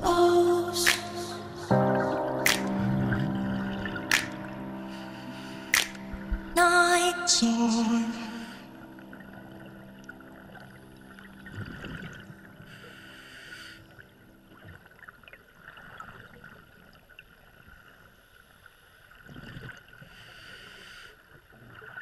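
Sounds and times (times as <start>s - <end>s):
soft held music chord: 0.0s - 14.5s
faint underwater crackle: 8.4s - 22.0s.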